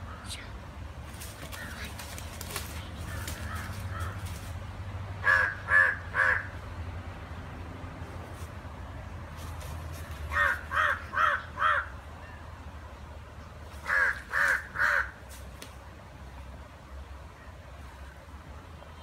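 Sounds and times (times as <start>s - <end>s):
crow cawing: 3.1s - 4.4s, 5.2s - 6.6s, 10.3s - 12.0s, 13.8s - 15.2s.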